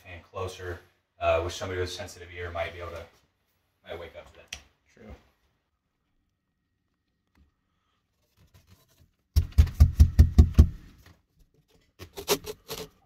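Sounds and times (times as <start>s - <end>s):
dull knocks: 9.4s - 10.8s.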